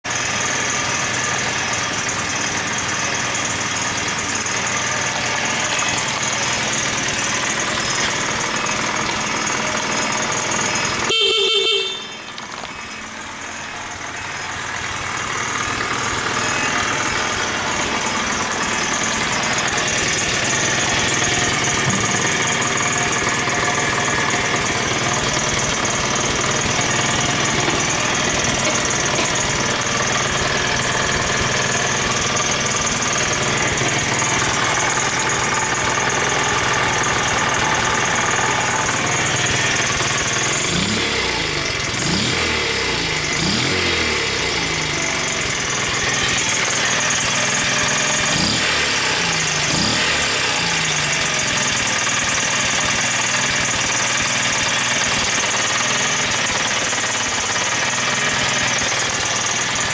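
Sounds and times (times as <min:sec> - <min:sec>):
small motorbike engine idling: 0:00.0 - 0:59.9
horn beep: 0:10.8 - 0:13.8.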